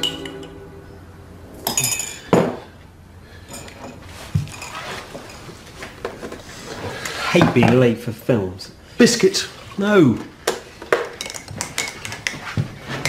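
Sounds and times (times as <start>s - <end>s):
glass clinks: 0.0s - 0.6s, 1.6s - 2.6s.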